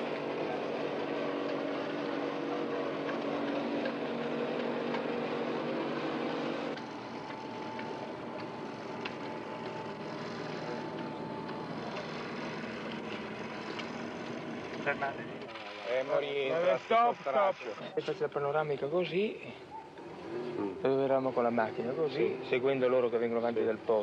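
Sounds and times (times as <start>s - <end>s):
motor drone with hum: 0.0s - 17.7s.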